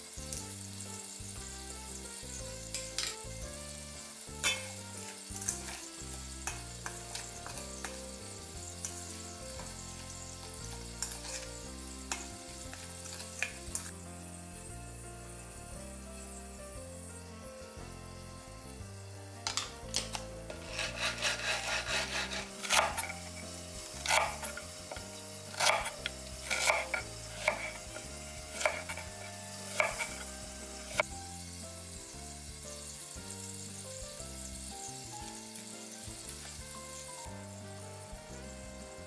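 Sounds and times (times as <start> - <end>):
quiet background music: 0.0 - 39.0
knife chopping on cutting board: 19.5 - 23.3, 24.0 - 29.0, 29.7 - 30.2.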